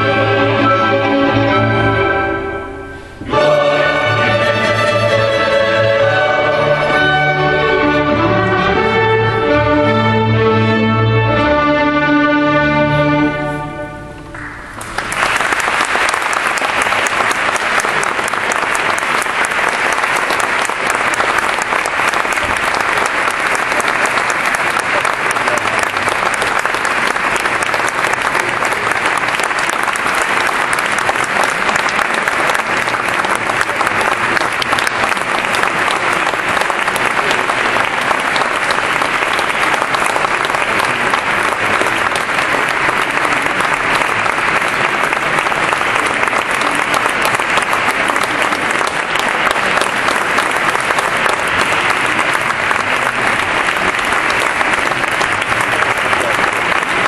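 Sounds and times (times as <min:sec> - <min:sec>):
choir and string orchestra chord: 0:00.0 - 0:14.2
audience applause: 0:03.3 - 0:11.4, 0:14.3 - 0:57.0.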